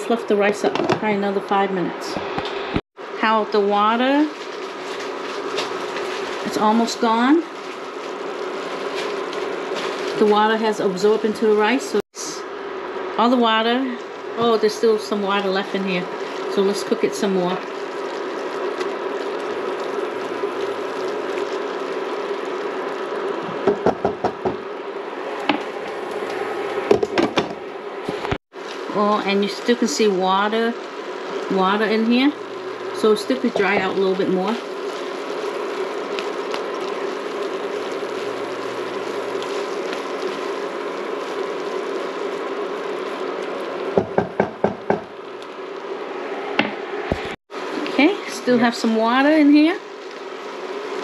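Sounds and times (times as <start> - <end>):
rice hissing in a pan: 2.3 - 27.2, 28.0 - 51.0
spatula tapping a pan: 44.0 - 45.1.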